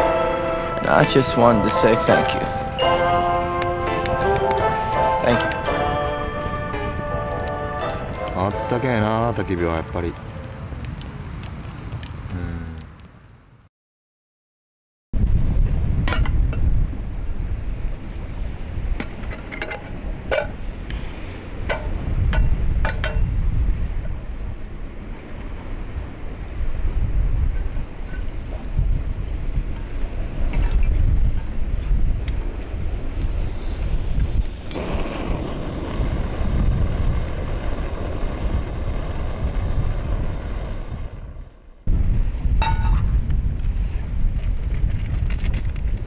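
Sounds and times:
wind rumble on microphone: 15.2 - 46.0
gas burner hissing: 20.0 - 43.4.

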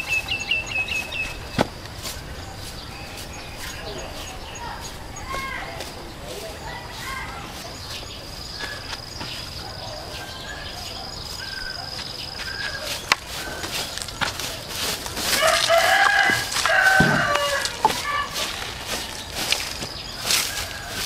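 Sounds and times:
bird chirps: 0.0 - 21.0
rooster crowing: 15.2 - 21.0.

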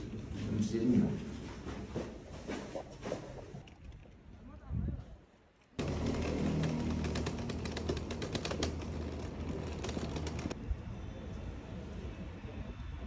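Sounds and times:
low hum of traffic: 3.2 - 13.0.

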